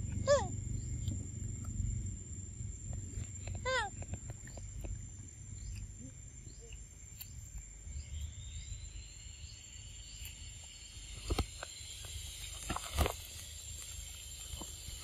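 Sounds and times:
low rumble: 0.0 - 6.5
faint chirps: 0.0 - 15.0
insect drone: 0.0 - 15.0.

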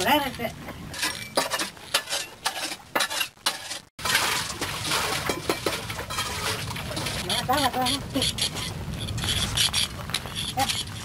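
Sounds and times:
bricks and stones clinking: 0.9 - 7.2.

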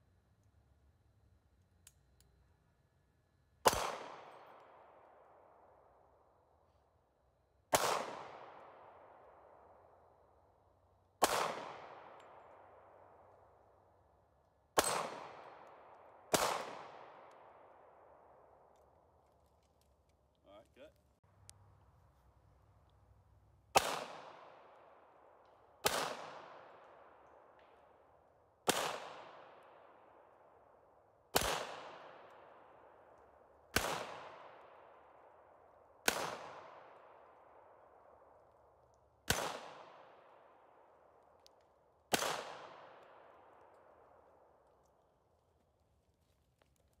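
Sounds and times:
handgun shots with echo: 3.6 - 4.8, 11.2 - 12.5, 14.8 - 15.6, 23.8 - 24.6.

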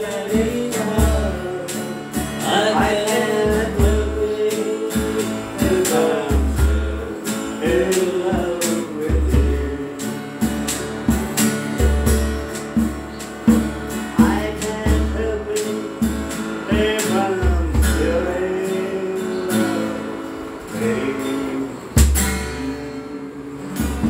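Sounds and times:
person singing: 0.0 - 10.4, 14.1 - 24.0
acoustic guitar strumming: 0.0 - 24.0
hand drum thumps: 10.4 - 15.2.

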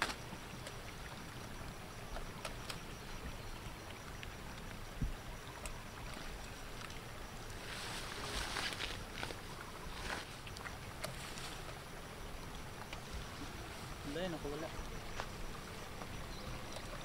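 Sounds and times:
rustling through leafy plants: 6.0 - 12.0.

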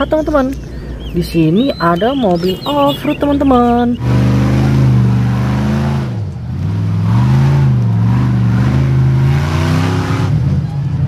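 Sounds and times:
buggy engine revving: 0.0 - 11.0
wheels churning through mud: 0.0 - 11.0.

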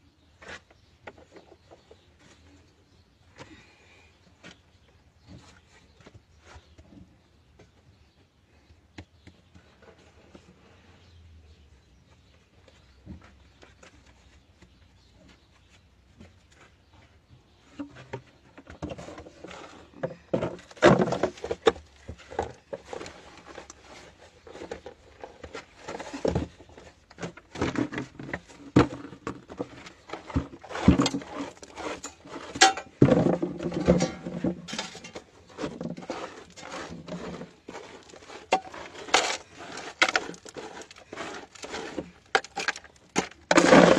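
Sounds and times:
clattering knocks and scrapes: 12.1 - 43.9
stones and earth scraped: 18.7 - 43.9.

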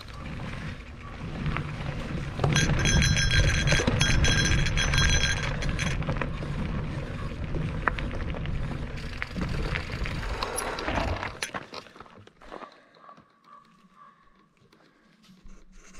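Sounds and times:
low rumble of wind: 0.0 - 11.5
ringing metallic tone: 2.4 - 6.0.

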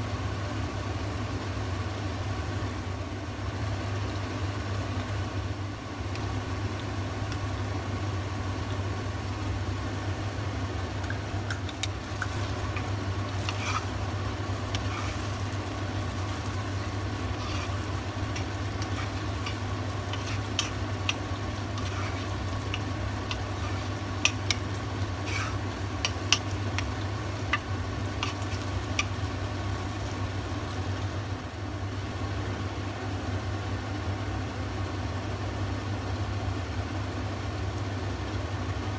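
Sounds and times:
steady low hum: 0.0 - 38.9
food sizzling in a pot: 1.2 - 31.6
wooden spoon scraping a pot: 11.6 - 29.2.

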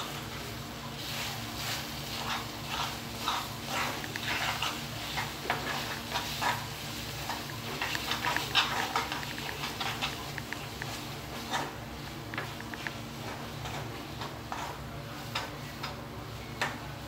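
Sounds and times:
faint sizzling: 0.0 - 17.0
steady low hum: 0.0 - 17.0
metal spoon scraping a pan: 1.1 - 10.3, 13.2 - 15.5.

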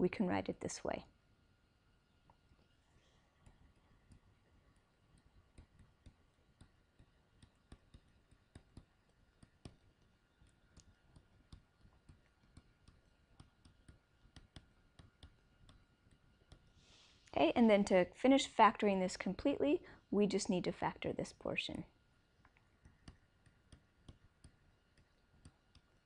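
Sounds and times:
faint electrical tone: 0.0 - 26.0
stylus tapping on tablet screen: 3.4 - 16.9, 22.5 - 26.0.

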